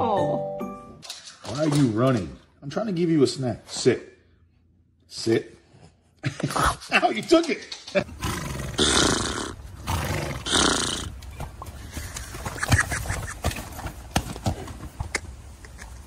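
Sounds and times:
horse snorting: 8.0s - 11.2s.

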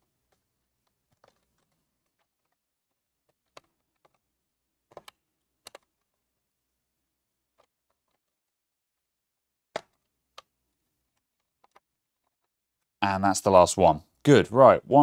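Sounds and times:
sharp plastic clicks: 0.2s - 6.2s.

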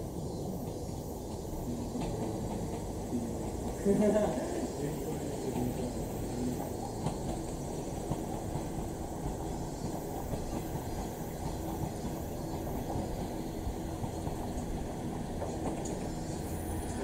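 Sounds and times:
diesel railcar running slowly: 0.0s - 17.0s
low engine and wheel noise: 5.2s - 17.0s.

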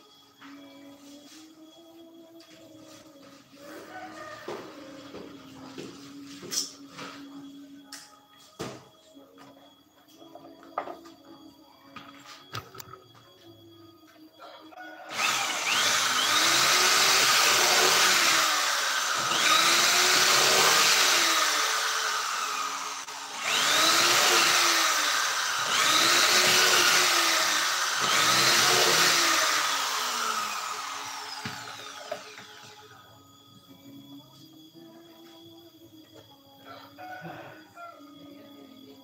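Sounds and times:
power tool cutting plywood: 15.1s - 33.0s.

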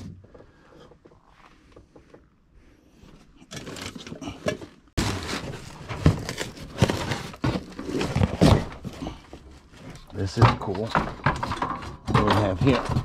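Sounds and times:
cardboard boxes scraping and rustling: 5.0s - 10.8s.

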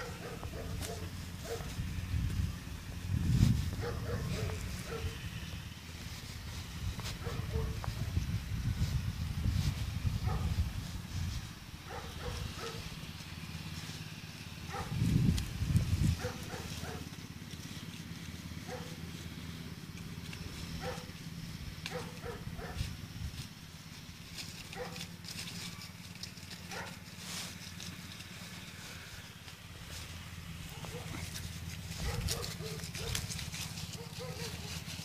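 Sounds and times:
microphone rumble: 0.0s - 11.6s
dogs yipping and whining: 20.8s - 21.1s, 21.9s - 22.9s, 33.9s - 34.9s.

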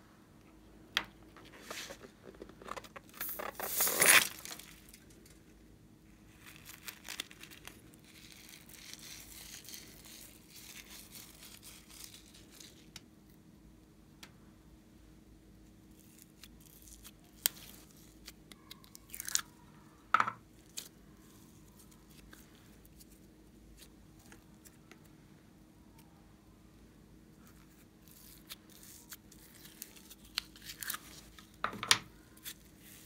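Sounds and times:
handling slime and plastic tub: 1.0s - 4.8s
slime squeezed with crackly hiss: 6.3s - 12.9s.

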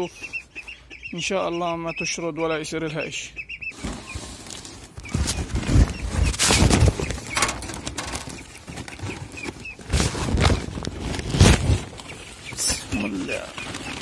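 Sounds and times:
plastic sack rustling: 3.8s - 14.0s
sack scraping: 3.8s - 14.0s.

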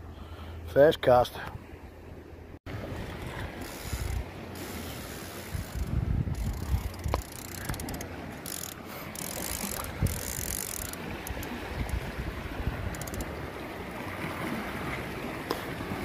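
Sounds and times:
wind rumbling on microphone: 2.7s - 8.4s, 9.3s - 16.0s
fishing reel clicking and whirring: 3.1s - 12.0s, 12.8s - 13.4s.

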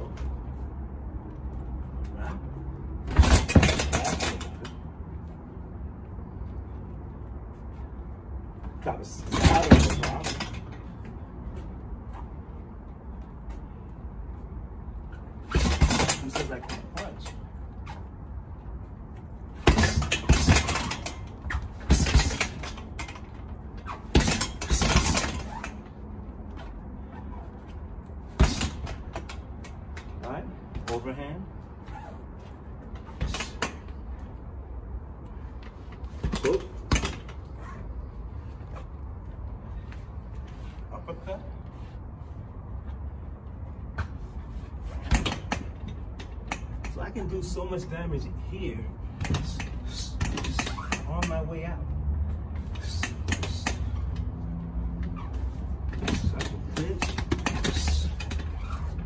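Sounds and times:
heavy thuds on punching bag: 3.0s - 4.6s, 9.2s - 10.6s, 15.4s - 17.2s, 19.6s - 23.1s, 23.9s - 25.7s, 28.3s - 29.3s.

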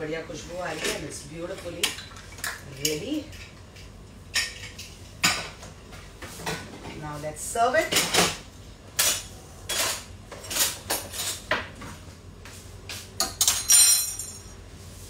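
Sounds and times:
cutlery clinking in a drawer: 13.2s - 14.5s.

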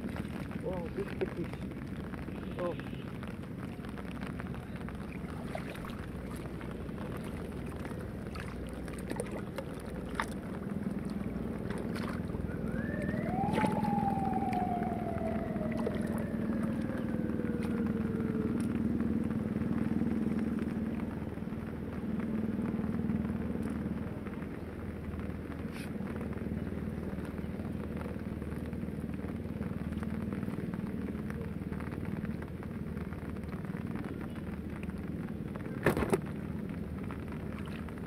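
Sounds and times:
rising and falling whine: 5.8s - 25.2s.

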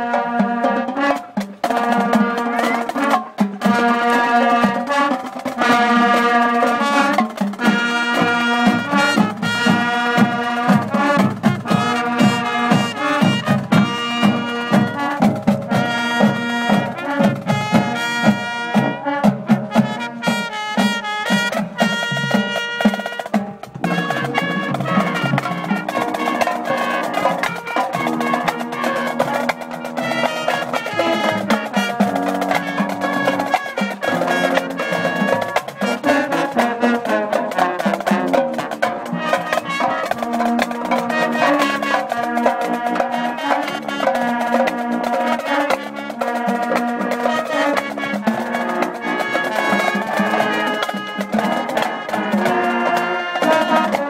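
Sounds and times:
brass melody: 0.0s - 54.0s
drumline percussion: 0.0s - 54.0s.

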